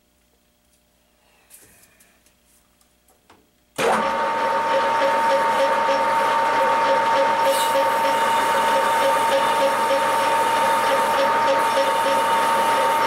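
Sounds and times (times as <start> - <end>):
metal lathe motor whining: 3.8 - 13.0.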